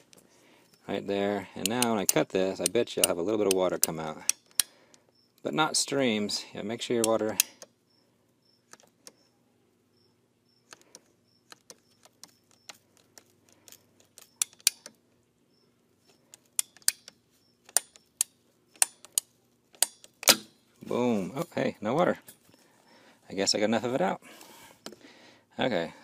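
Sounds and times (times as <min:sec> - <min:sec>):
pipe cutter ratcheting clicks: 0:01.6 - 0:04.7, 0:07.0 - 0:07.7, 0:11.5 - 0:15.0, 0:16.3 - 0:20.4
blade snapping through pipe: 0:17.7 - 0:20.6.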